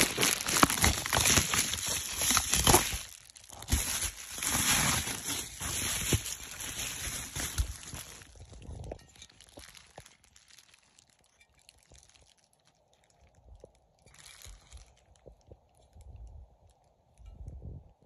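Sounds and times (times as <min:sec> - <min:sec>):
bubble wrap clicks and taps: 0:00.0 - 0:08.3
plastic crinkling: 0:00.0 - 0:15.6.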